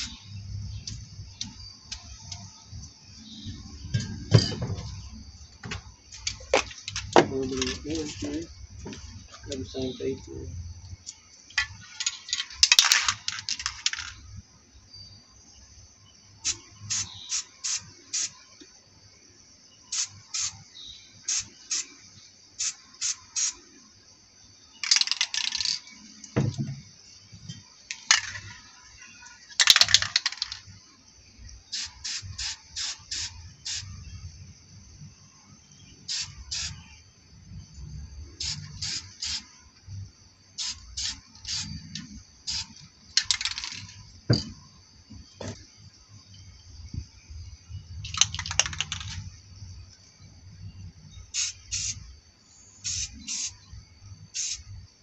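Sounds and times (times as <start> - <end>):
spray-paint can spraying: 16.4 - 18.4, 19.9 - 20.6, 21.3 - 21.9, 22.6 - 23.6, 31.7 - 33.9, 36.1 - 36.8, 38.4 - 39.4, 40.6 - 41.7, 42.5 - 42.7, 51.3 - 52.0, 52.8 - 53.6, 54.3 - 54.7
dull knocks: 26.4 - 26.8, 44.3 - 45.6.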